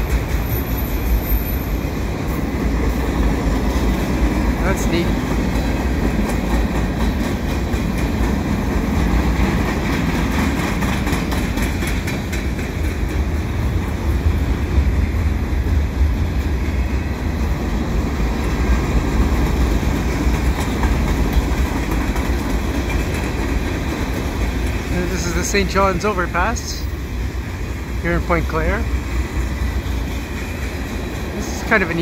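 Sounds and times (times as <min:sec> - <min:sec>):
train wheels rumbling on rails: 0:00.0 - 0:32.0
clacking over rail joints: 0:03.0 - 0:14.0, 0:18.6 - 0:26.1.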